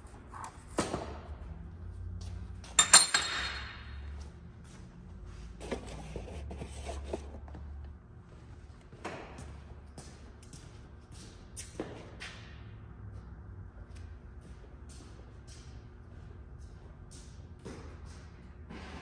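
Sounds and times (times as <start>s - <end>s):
metal clinks on steel workbench: 2.8s - 4.0s
metal handling clatter: 2.8s - 4.0s.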